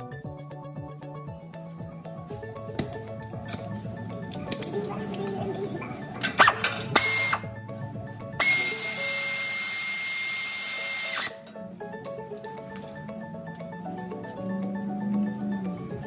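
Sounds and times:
background music with mallet notes: 0.0 - 16.0
power tool running: 6.4 - 7.5, 8.4 - 11.4.

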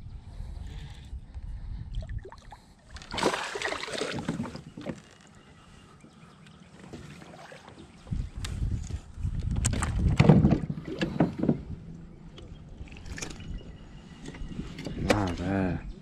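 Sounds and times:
low wind rumble: 0.0 - 6.2, 7.8 - 16.0.

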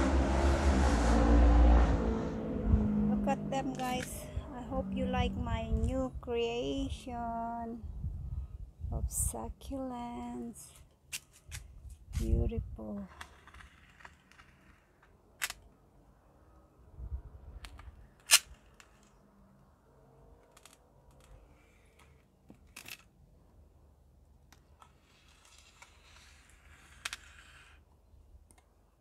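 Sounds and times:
low bump: 0.0 - 5.9.

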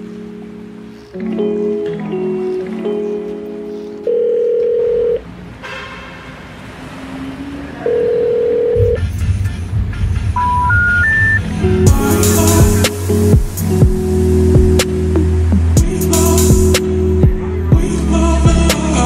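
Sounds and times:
background music: 0.0 - 5.1, 7.3 - 19.0
short rising beeps: 10.4 - 11.5.

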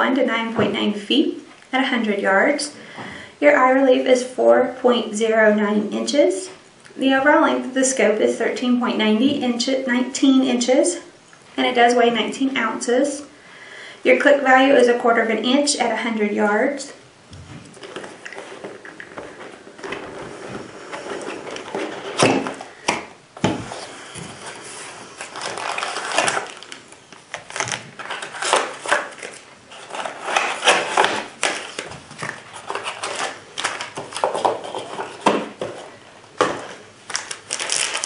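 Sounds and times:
plastic wrap and papers rustling: 17.6 - 23.0, 23.6 - 38.0.

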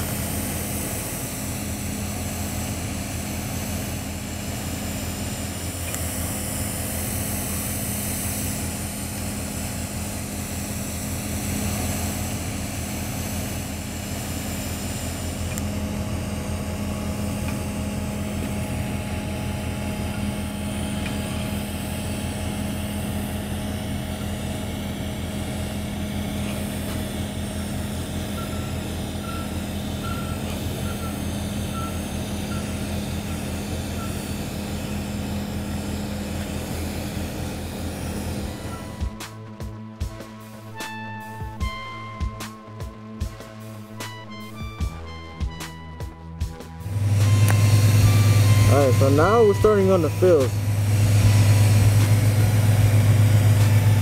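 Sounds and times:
welding arc humming and hissing: 0.0 - 54.0
reversing beeper: 10.2 - 35.2, 38.2 - 54.0.

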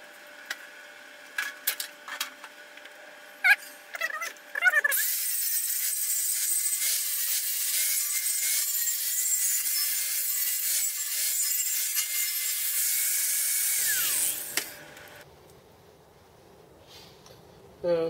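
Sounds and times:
angle grinder grinding steel: 4.8 - 15.2.

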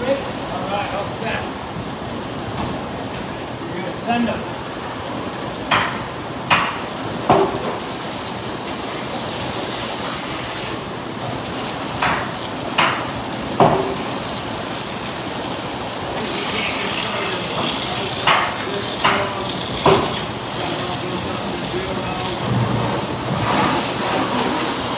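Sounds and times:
spray gun hissing water: 7.6 - 24.9.

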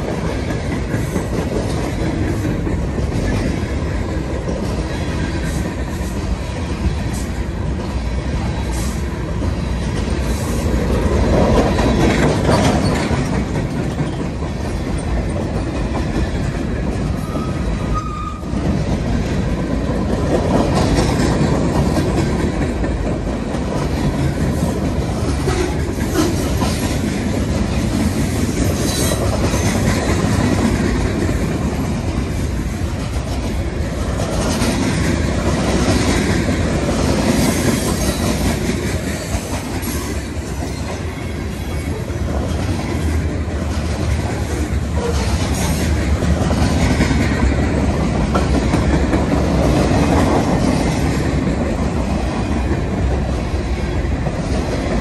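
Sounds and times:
wheels clicking over rail joints: 0.0 - 55.0
wheel squeal: 17.2 - 18.5.

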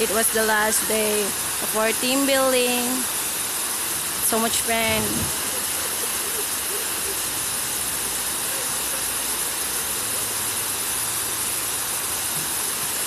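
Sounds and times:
waterfall pouring into pool: 0.0 - 13.0.

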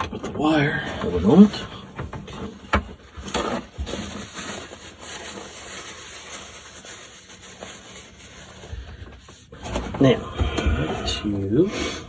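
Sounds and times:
paper towel rustling: 0.9 - 10.2.

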